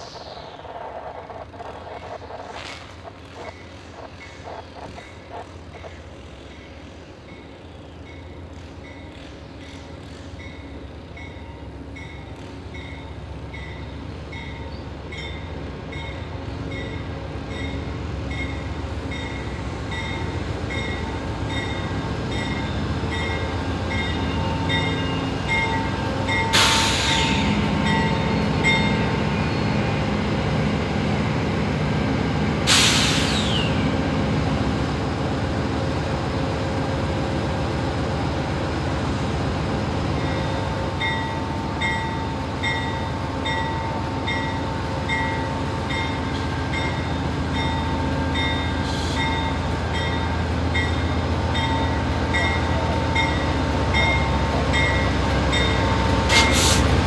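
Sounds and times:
passenger train rumbling past: 0:00.0 - 0:57.0
crossing bell dinging: 0:10.5 - 0:26.6, 0:27.8 - 0:29.2, 0:40.2 - 0:56.6.

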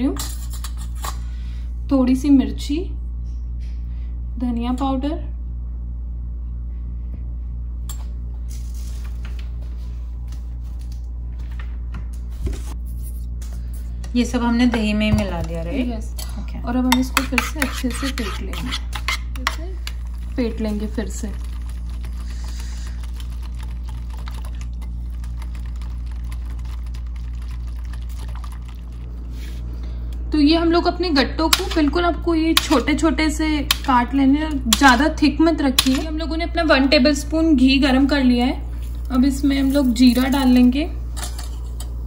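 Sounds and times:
steady low hum: 0:00.0 - 0:42.0.

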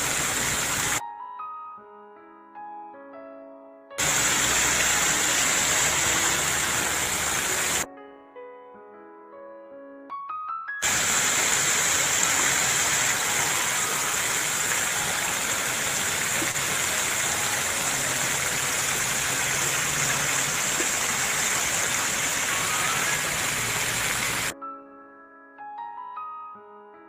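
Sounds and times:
fountain water splashing: 0:00.0 - 0:01.0, 0:04.0 - 0:07.9, 0:10.8 - 0:24.6.

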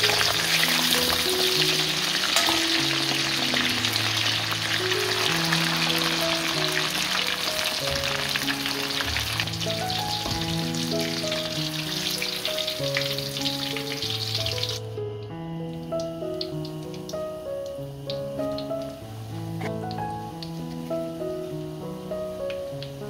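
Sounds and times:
deep-frying sizzle: 0:00.0 - 0:23.0
light background music: 0:00.0 - 0:23.0.

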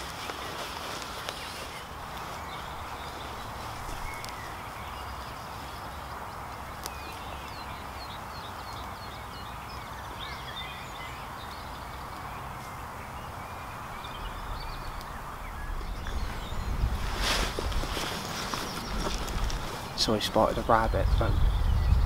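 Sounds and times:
footsteps through grass: 0:00.0 - 0:07.6, 0:14.1 - 0:20.7
outdoor hiss and low rumble: 0:00.0 - 0:22.0
small birds chirping: 0:00.0 - 0:22.0.

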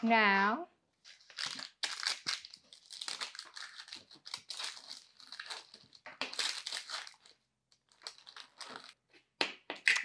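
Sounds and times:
paper crinkling: 0:01.1 - 0:09.0
crisp clusters crackling: 0:01.2 - 0:09.0.

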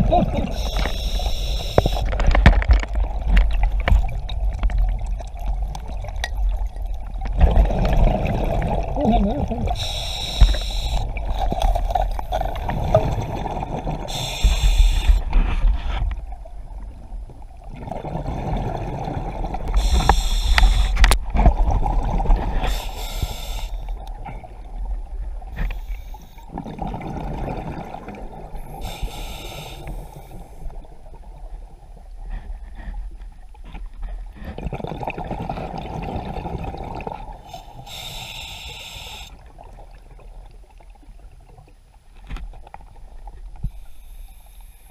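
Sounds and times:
exhaled bubbles rumbling: 0:00.0 - 0:23.2, 0:26.4 - 0:29.0, 0:34.1 - 0:37.5
regulator hiss: 0:00.5 - 0:02.1, 0:09.8 - 0:11.6, 0:14.1 - 0:15.2, 0:19.7 - 0:21.0, 0:22.7 - 0:24.0, 0:28.6 - 0:30.6, 0:37.5 - 0:39.4.

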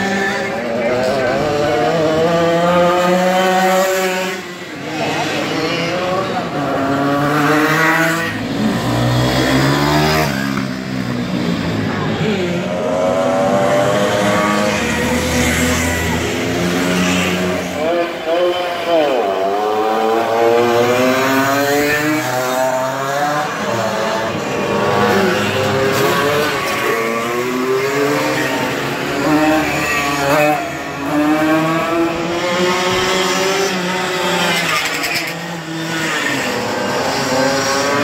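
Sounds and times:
mopeds revving past: 0:00.0 - 0:17.8.

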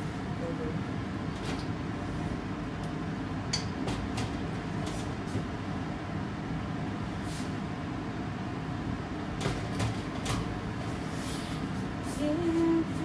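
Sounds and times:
gas stove flame rushing: 0:07.1 - 0:07.8.

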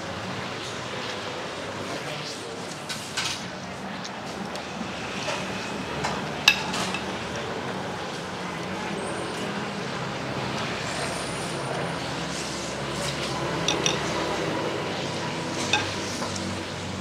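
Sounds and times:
busy street traffic: 0:00.0 - 0:17.0
utensils clinking against bowls: 0:06.4 - 0:07.2, 0:13.6 - 0:14.4, 0:15.6 - 0:16.5.

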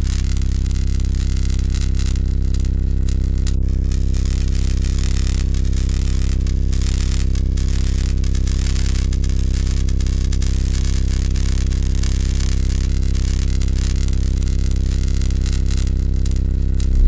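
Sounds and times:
flickering static hiss: 0:00.0 - 0:00.9, 0:15.4 - 0:17.0
deep low drone: 0:16.8 - 0:17.0.

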